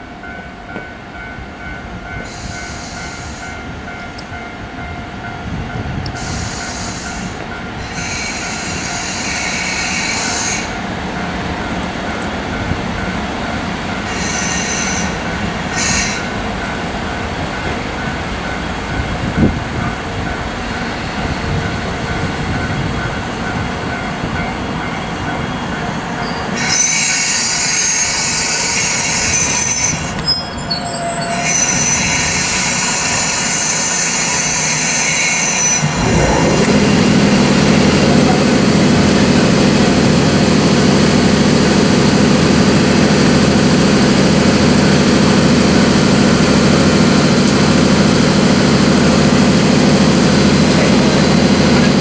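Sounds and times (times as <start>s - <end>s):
train wheels and brakes squealing: 2.0s - 4.9s, 6.1s - 10.9s, 14.0s - 16.8s, 17.4s - 38.1s
cooling blowers humming: 35.9s - 42.7s.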